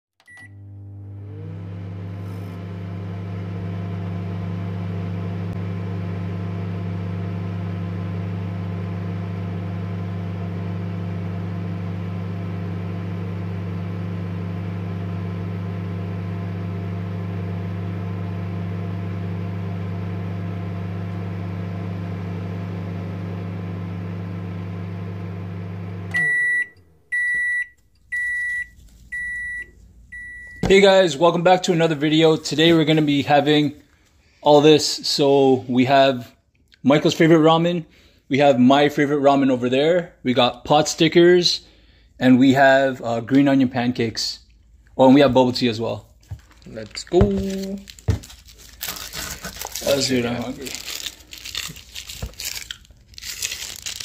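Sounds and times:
microwave beeps: 0.2s - 1.3s, 26.0s - 30.8s
microwave oven humming: 0.2s - 31.2s, 46.4s - 54.0s.

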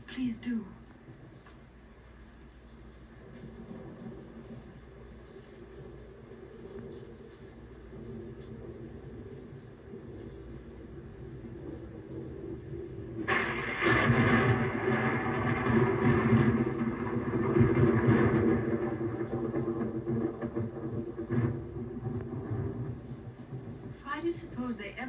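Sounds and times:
crickets chirping: 0.0s - 25.0s
sudden loud sound: 13.0s - 24.0s.

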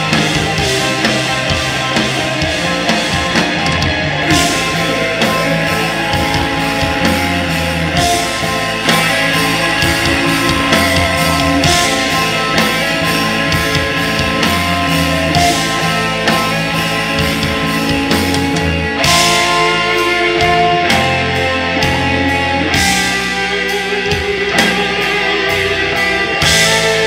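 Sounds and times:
live metal band playing: 0.0s - 27.0s.

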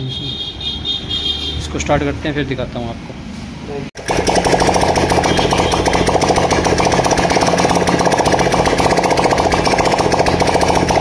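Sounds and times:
motorcycle engine open exhaust: 4.0s - 11.0s.

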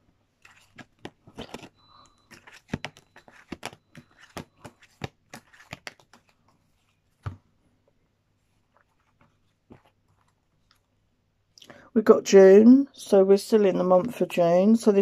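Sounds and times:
cards being shuffled: 0.4s - 7.4s.

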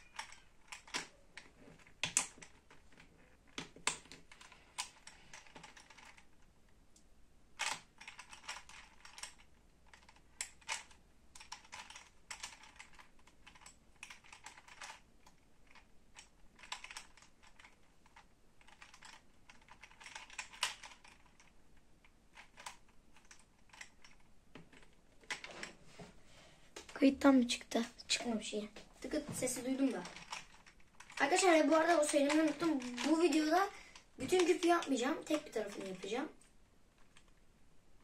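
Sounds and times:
puzzle cube clicking: 0.0s - 6.2s, 7.6s - 21.5s, 22.3s - 25.5s, 29.1s - 36.0s.

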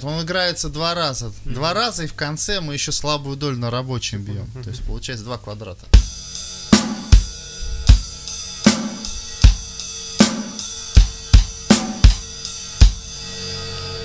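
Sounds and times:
drum kit playing: 6.0s - 13.4s
ringing cymbals: 6.0s - 14.0s.

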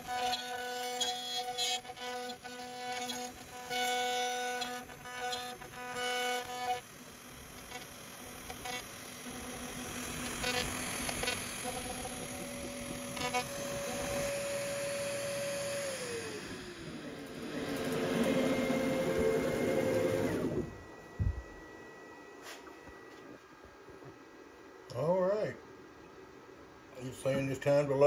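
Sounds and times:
router spindle cutting wood: 0.0s - 21.0s.

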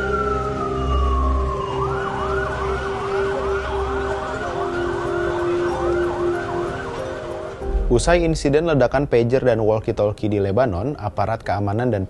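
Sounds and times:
emergency siren wail and yelp: 0.0s - 7.7s.

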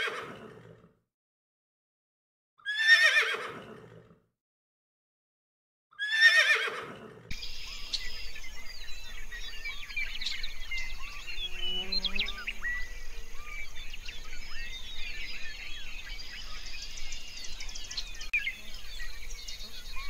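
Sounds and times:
horse whinnying: 2.6s - 3.8s, 6.0s - 7.0s
birds chirping: 7.3s - 20.0s.

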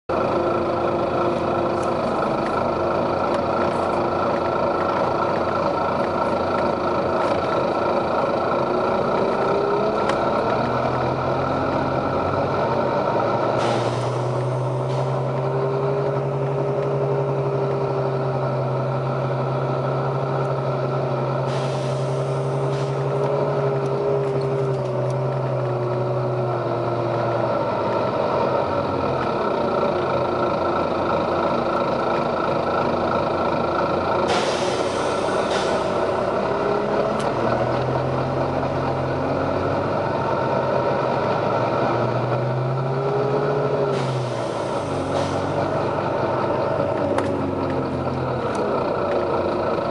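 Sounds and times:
bus diesel engine drone: 0.1s - 49.9s
compressed air hissing: 21.5s - 23.0s, 34.3s - 36.0s.

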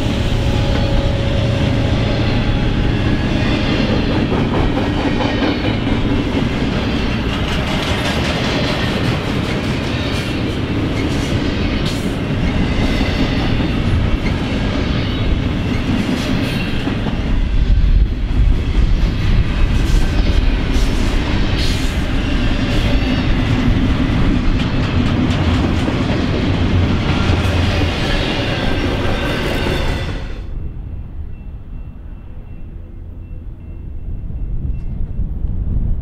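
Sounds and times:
train wheels rumbling on rail: 0.0s - 36.0s.

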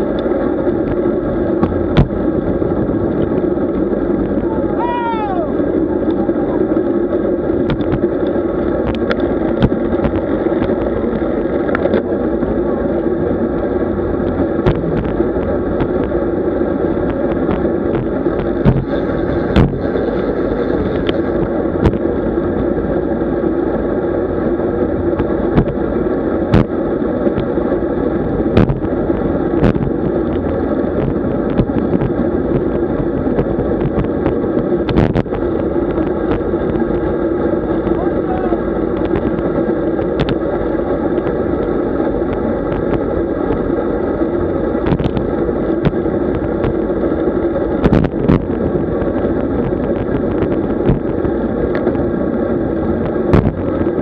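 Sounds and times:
wind noise on microphone: 0.0s - 54.0s
sharp knocks and clicks: 17.1s - 18.9s.

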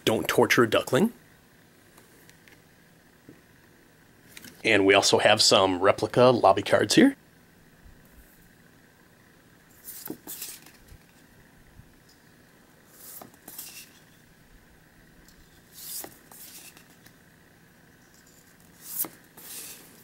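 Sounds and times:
cards being shuffled: 9.8s - 11.2s, 13.0s - 14.0s, 15.7s - 17.1s, 18.2s - 20.0s.

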